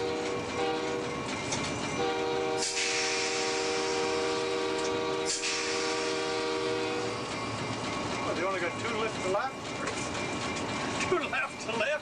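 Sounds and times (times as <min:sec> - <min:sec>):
locomotive air horn blast: 0:00.0 - 0:01.2, 0:02.0 - 0:07.2
train running: 0:00.0 - 0:12.0
rushing hiss: 0:02.6 - 0:04.2, 0:05.3 - 0:06.2.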